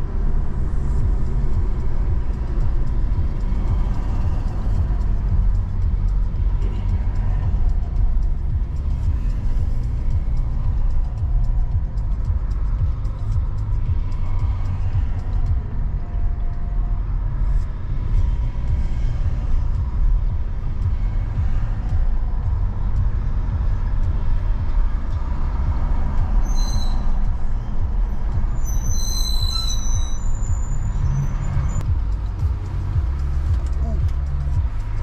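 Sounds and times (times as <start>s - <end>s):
road and wind noise: 0.0s - 35.0s
short high-pitched squeals: 26.4s - 27.3s, 28.5s - 31.8s.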